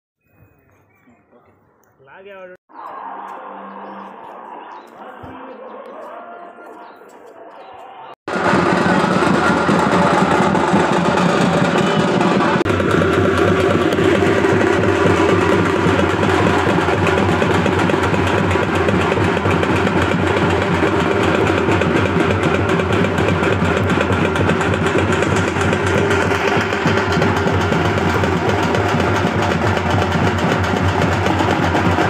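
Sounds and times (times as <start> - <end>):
frame drums beaten rapidly: 8.3 - 32.0.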